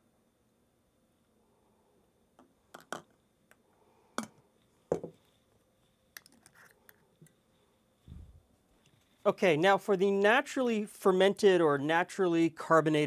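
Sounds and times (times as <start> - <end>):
glass and plastic knocking: 4.9 - 5.2
bottle cap screwing clicks: 6.2 - 7.0.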